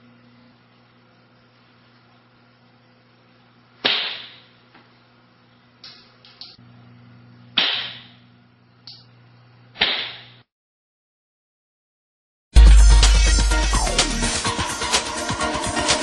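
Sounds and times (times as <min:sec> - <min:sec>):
toy launcher sharp snaps: 0:03.8 - 0:04.5, 0:07.6 - 0:08.2, 0:09.8 - 0:10.4.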